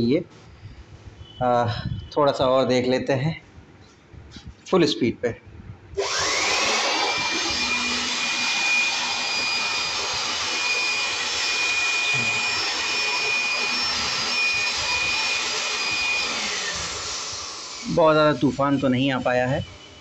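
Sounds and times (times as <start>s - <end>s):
electric air blower whine: 6.0s - 20.0s.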